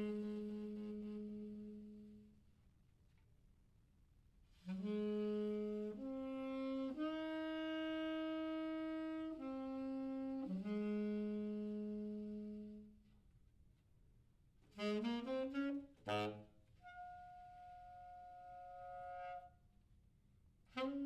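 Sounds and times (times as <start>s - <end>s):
saxophone playing slow phrase: 0.0s - 2.4s, 4.5s - 13.1s, 14.7s - 19.5s, 20.7s - 21.0s.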